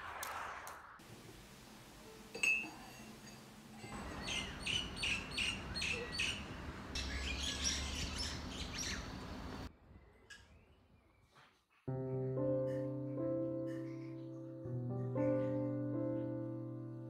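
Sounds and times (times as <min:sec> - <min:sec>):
spoon clinking against mug: 0:02.1 - 0:04.1
small birds chirping: 0:03.8 - 0:11.4.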